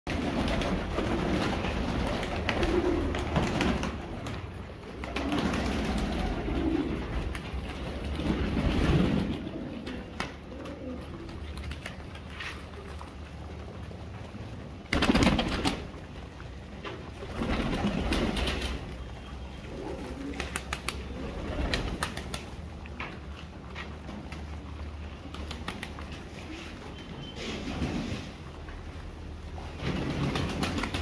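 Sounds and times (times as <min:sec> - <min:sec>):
pigeons cooing: 0:00.1 - 0:14.2, 0:14.8 - 0:22.2.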